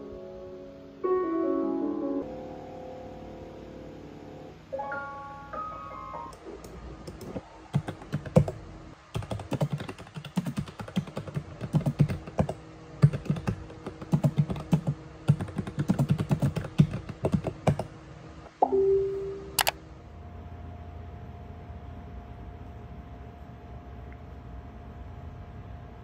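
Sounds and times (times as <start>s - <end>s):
typing on computer keyboard: 7.0s - 17.9s.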